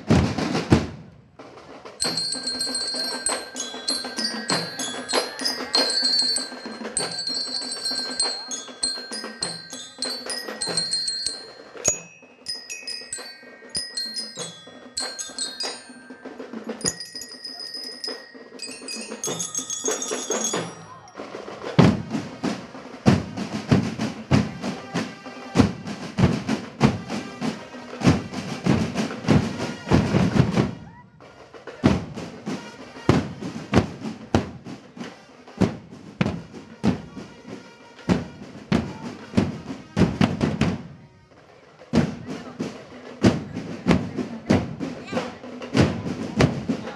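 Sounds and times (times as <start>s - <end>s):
marching drums: 0.0s - 46.9s
bell lyres playing melody: 2.0s - 29.8s.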